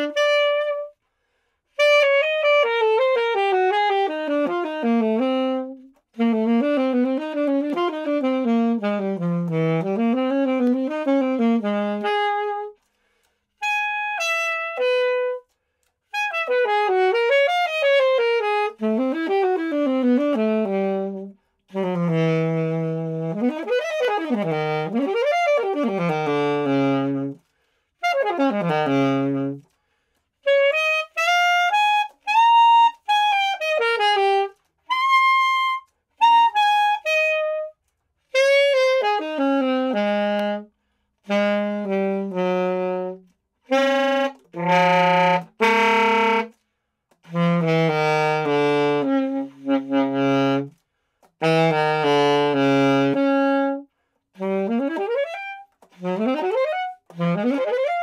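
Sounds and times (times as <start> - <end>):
alto saxophone solo: 0.0 - 58.0.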